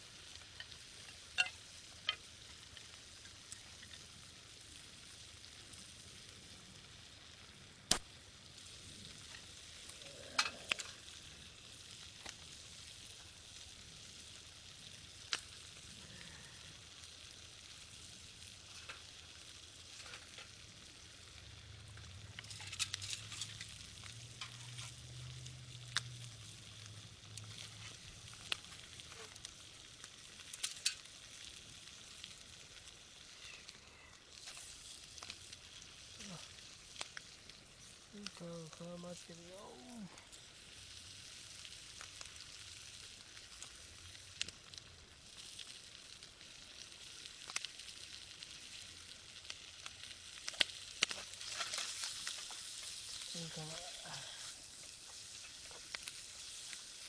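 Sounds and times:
chicken skin sizzling in pan: 0:00.0 - 0:57.0
crackling: 0:00.0 - 0:57.0
sharp pops of fat: 0:07.9 - 0:08.1.

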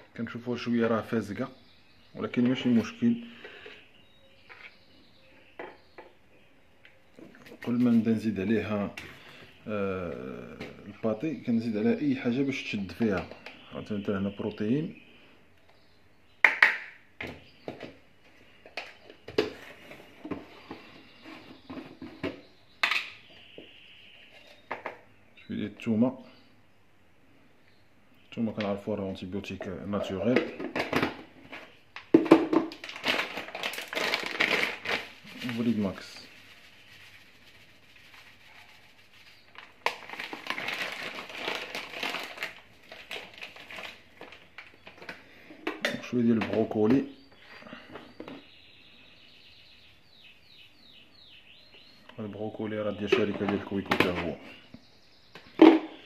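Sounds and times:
packets crinkling and crunching: 0:32.6 - 0:45.2.

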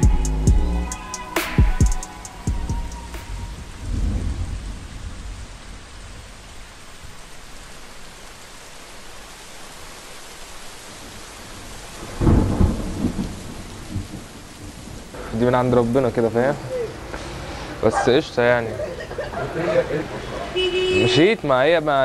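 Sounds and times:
steady rain hissing: 0:02.0 - 0:22.0
thunder rumble: 0:02.4 - 0:07.2, 0:10.9 - 0:18.4.

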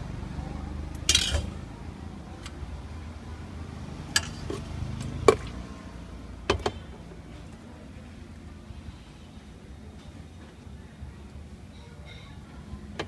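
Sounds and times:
utensils clinking on steel pots: 0:01.0 - 0:01.6, 0:04.1 - 0:05.6.

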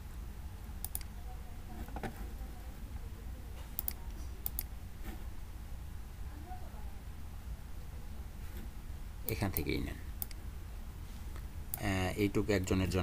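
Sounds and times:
low steady hum: 0:00.0 - 0:13.0
computer mouse button clicking: 0:03.8 - 0:04.7.

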